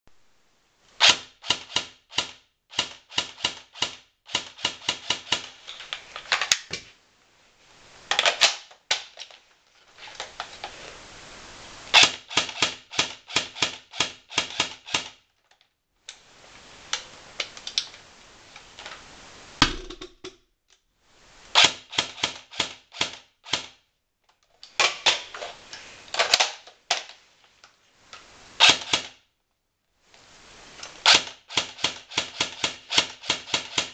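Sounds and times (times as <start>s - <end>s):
airsoft gun firing: 1.0s - 5.5s, 28.6s - 29.1s, 31.1s - 33.9s.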